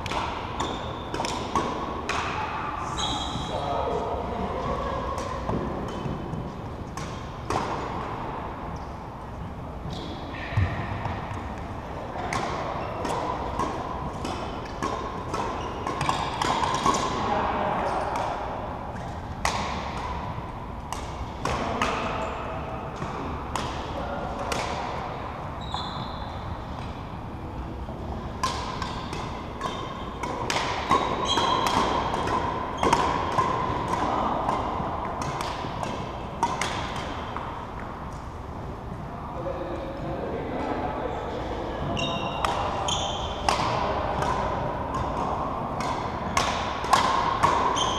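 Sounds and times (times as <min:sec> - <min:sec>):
rackets striking shuttlecocks: 0:00.0 - 0:02.5, 0:05.2 - 0:08.8, 0:11.0 - 0:17.2, 0:17.9 - 0:22.3, 0:22.9 - 0:25.2, 0:27.9 - 0:38.3, 0:42.1 - 0:47.9
murmur of voices: 0:02.0 - 0:06.4, 0:38.7 - 0:47.5.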